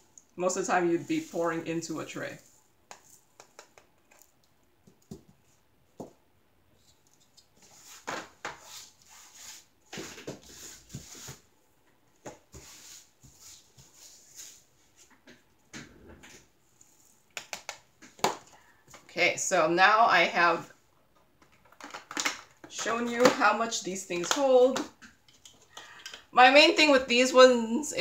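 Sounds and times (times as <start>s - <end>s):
plastic containers clicking and tapping: 2.9s - 5.4s, 21.2s - 23.5s.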